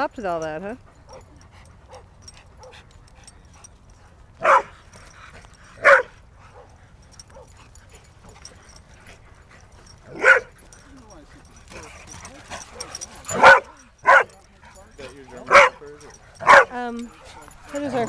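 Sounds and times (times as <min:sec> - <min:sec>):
dog barking: 0:04.4 - 0:04.8, 0:05.8 - 0:07.6, 0:10.1 - 0:10.6, 0:11.8 - 0:14.4, 0:15.0 - 0:18.0.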